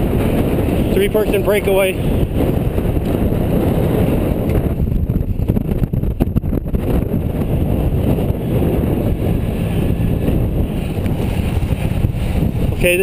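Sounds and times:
wind roaring over microphone: 0:00.0 - 0:13.0.

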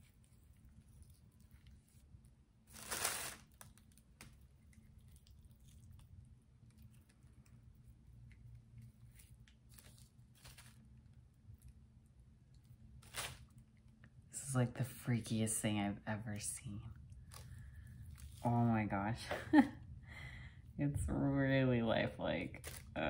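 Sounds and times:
soft mold crunching and tearing: 0:00.0 - 0:14.0, 0:17.0 - 0:18.5.

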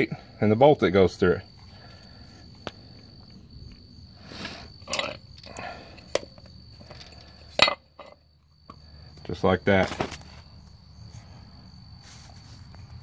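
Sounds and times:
clicks and scuffs of parts handled: 0:09.8 - 0:10.4.

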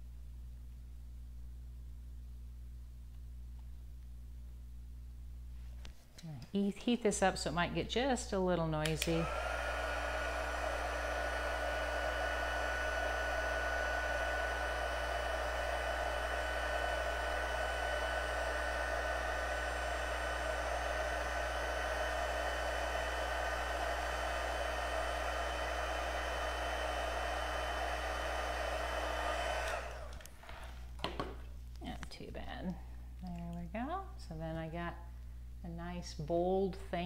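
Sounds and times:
fan motor whine: 0:06.6 - 0:31.0
heat tool blowing air: 0:06.8 - 0:30.8.

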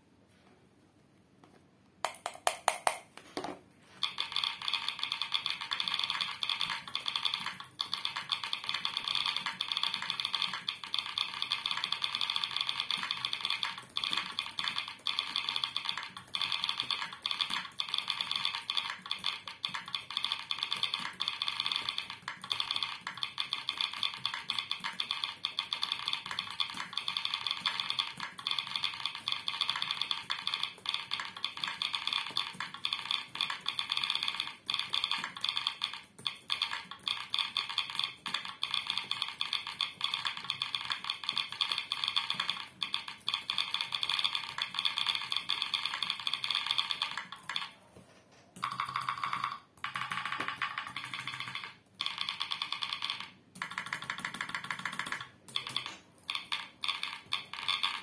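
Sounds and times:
simulated keyboard key clicks: 0:02.0 - 0:03.1, 0:48.6 - 0:58.0.

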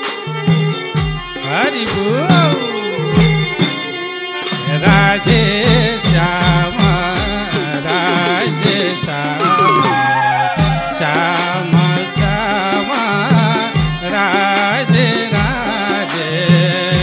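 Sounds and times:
hand drums beating: 0:00.0 - 0:17.0
harmonium chords: 0:00.0 - 0:17.0
frame drum strokes: 0:00.5 - 0:17.0
wavering flute melody: 0:09.3 - 0:11.6.

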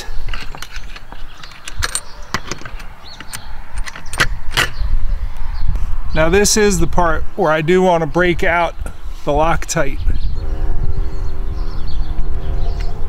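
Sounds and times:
small metal hardware clinking: 0:00.0 - 0:04.8
low rumble: 0:10.0 - 0:13.0.

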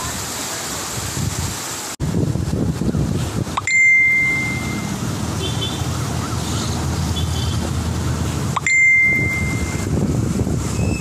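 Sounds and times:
floodwater rushing: 0:00.0 - 0:11.0
wind: 0:00.0 - 0:11.0
high steady beep: 0:03.6 - 0:05.0, 0:08.6 - 0:09.9.

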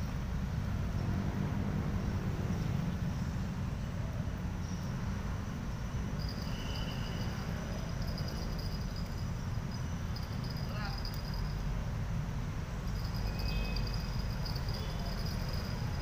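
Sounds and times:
traffic rumble overhead: 0:00.0 - 0:16.0
insects chirping: 0:04.6 - 0:16.0.

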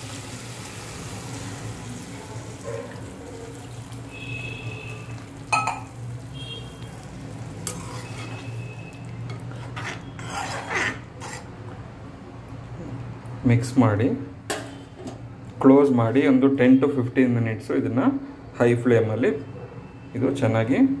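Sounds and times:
spoon stirring wet gravy: 0:07.5 - 0:11.6
spoon scraping metal pot: 0:07.6 - 0:11.6
short metallic squeaks: 0:07.8 - 0:08.8.

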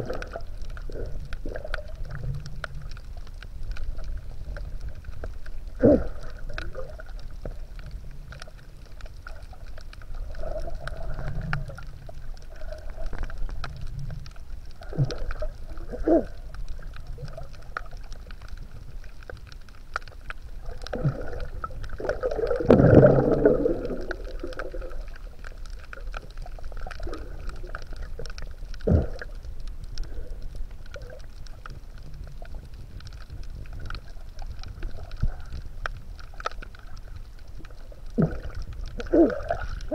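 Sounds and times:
low underwater rumble: 0:00.0 - 0:39.9
underwater gurgling and bubbling: 0:00.0 - 0:39.9.

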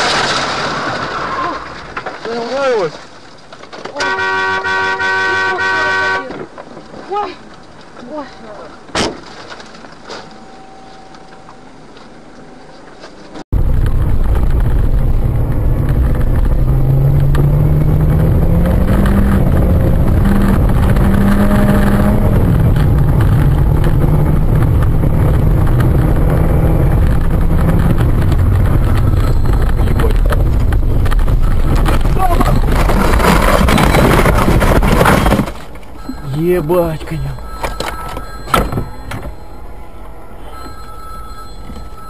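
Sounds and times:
road noise: 0:00.0 - 0:42.0
car engine: 0:09.1 - 0:42.0.

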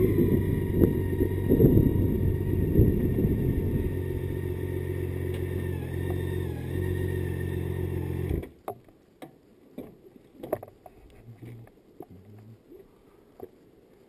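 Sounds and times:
motorcycle engine running: 0:00.0 - 0:08.4.

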